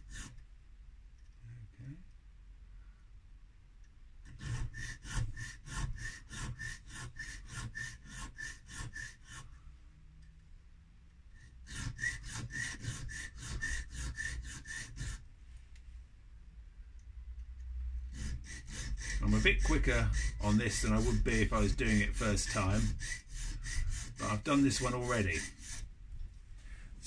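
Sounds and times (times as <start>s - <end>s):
file rasping on metal: 0.0s - 0.4s, 4.2s - 9.6s, 11.4s - 15.3s, 18.0s - 25.9s.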